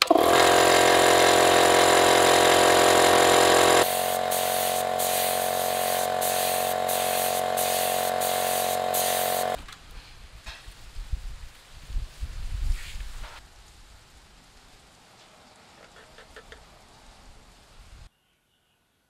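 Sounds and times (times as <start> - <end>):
air compressor running: 0.0 - 9.6
spray gun hissing: 0.0 - 9.6.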